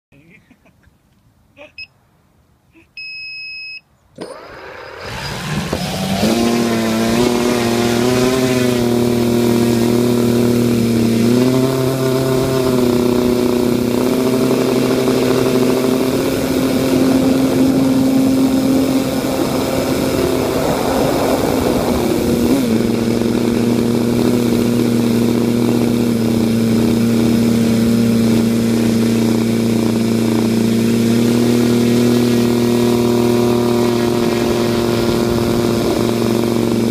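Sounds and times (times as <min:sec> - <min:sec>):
short beep: 0:03.0 - 0:03.9
electric drone motors whirring: 0:04.2 - 0:36.9.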